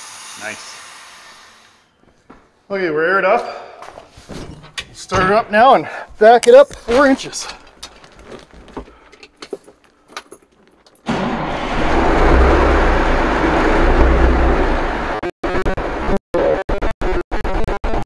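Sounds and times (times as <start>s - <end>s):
diesel truck engine starting: 11.0s - 16.0s.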